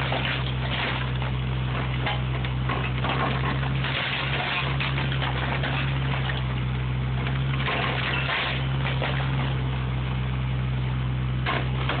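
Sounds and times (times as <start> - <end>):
debris cracking and crunching: 0.0 - 6.6, 7.2 - 9.6
diesel engine running: 0.0 - 12.0.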